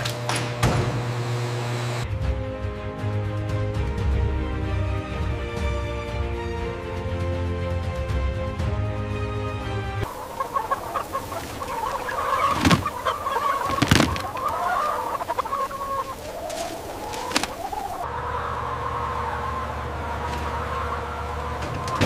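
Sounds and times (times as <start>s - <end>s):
background music: 2.0s - 16.2s
chickens clucking: 10.0s - 22.0s.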